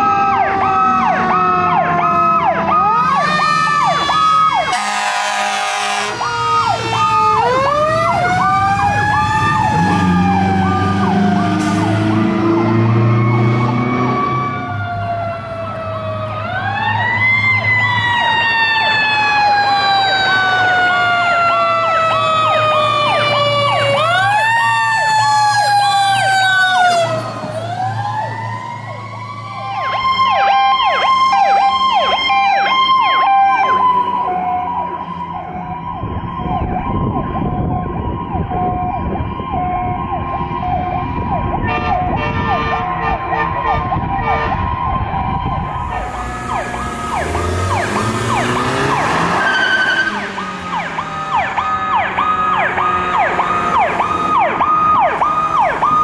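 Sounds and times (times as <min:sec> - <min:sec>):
stepped siren warble: 0:00.0 - 0:42.2, 0:42.8 - 0:56.0
fire truck sirens wailing: 0:00.0 - 0:56.0
loud horn blast: 0:03.2 - 0:07.0, 0:41.6 - 0:44.8
truck engine humming: 0:45.2 - 0:56.0.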